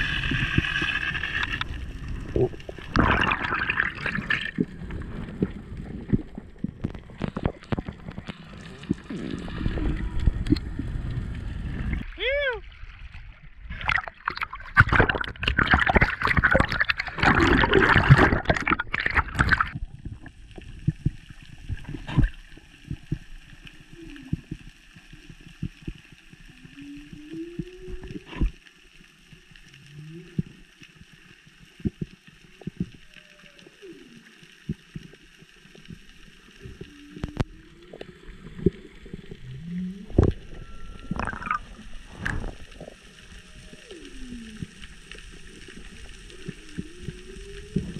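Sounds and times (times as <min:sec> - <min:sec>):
water splashing and bubbling: 0:00.0 - 0:47.9
underwater clicks and knocks: 0:06.0 - 0:08.5, 0:13.8 - 0:23.3, 0:40.0 - 0:41.6
whale song calls: 0:23.8 - 0:24.7, 0:26.4 - 0:28.5, 0:32.8 - 0:34.8, 0:36.6 - 0:38.8, 0:39.4 - 0:47.9.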